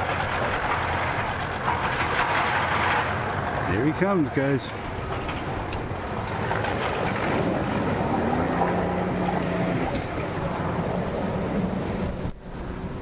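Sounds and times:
water churning: 0.0 - 13.0
outboard motor running: 3.9 - 13.0.

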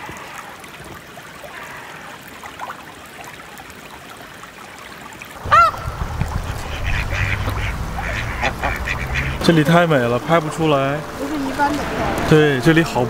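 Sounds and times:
running water: 0.0 - 13.0
heavy rain: 5.3 - 13.0
loud rising and falling call: 5.4 - 9.8
low rumble: 5.4 - 12.4.

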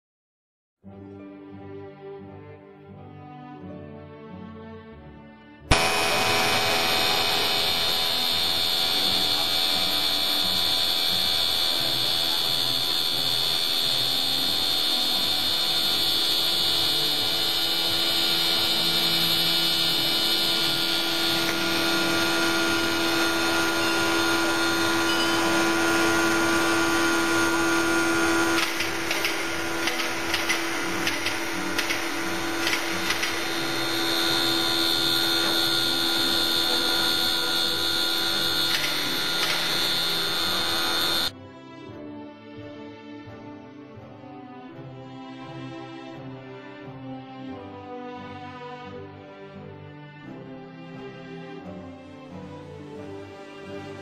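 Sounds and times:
milling machine whine: 5.7 - 41.3.

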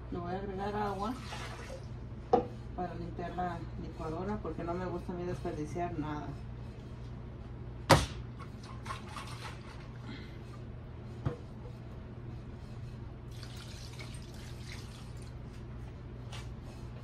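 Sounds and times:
liquid pouring and splashing: 1.1 - 1.9, 13.3 - 15.4.

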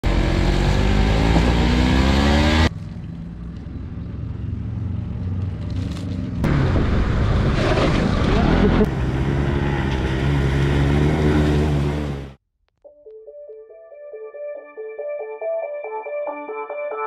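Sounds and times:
vehicle engine revving: 0.0 - 2.7, 6.4 - 12.4.

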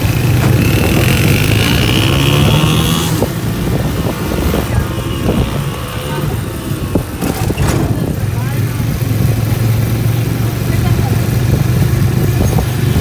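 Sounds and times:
rickshaw engine running: 0.0 - 13.0
road noise: 0.0 - 13.0.

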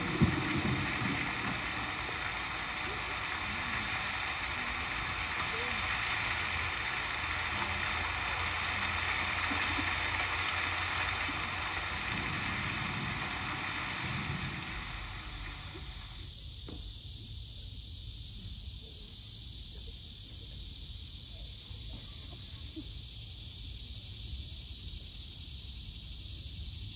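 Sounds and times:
heavy rain hissing: 0.0 - 16.5
thin high hiss: 0.0 - 26.9.

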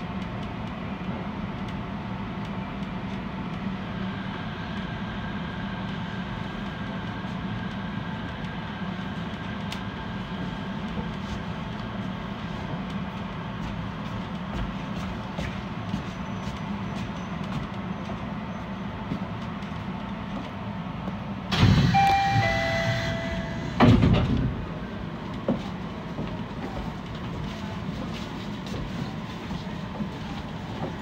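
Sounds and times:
monorail car humming: 0.0 - 31.0
sliding doors thumping shut: 21.5 - 24.7
falling two-note chime: 21.9 - 23.7.

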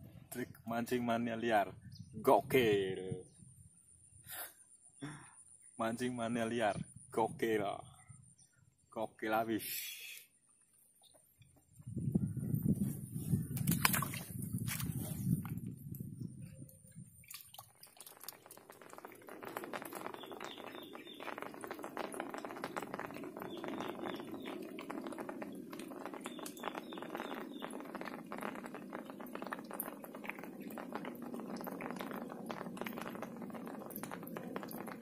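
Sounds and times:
light rain pattering: 17.3 - 35.0.

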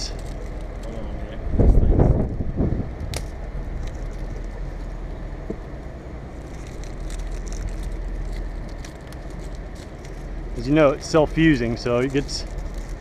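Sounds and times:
tape crackling and clicking: 0.0 - 1.0, 3.0 - 5.6, 6.4 - 13.0
truck engine running: 0.0 - 13.0.

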